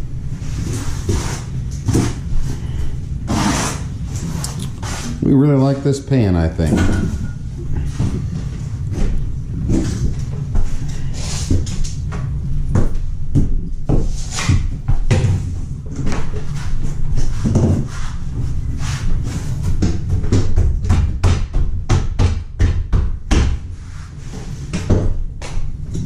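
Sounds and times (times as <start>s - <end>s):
steady low hum: 0.0s - 26.0s
tools knocking and scraping: 6.6s - 10.7s.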